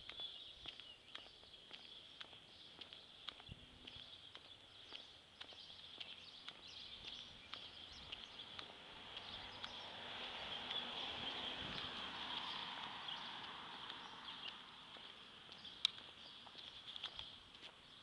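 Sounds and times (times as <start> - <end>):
footsteps on concrete: 0.0 - 18.0.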